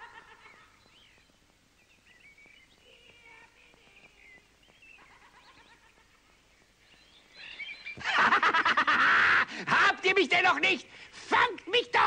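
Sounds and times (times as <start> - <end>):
faint birds chirping: 0.0 - 9.0.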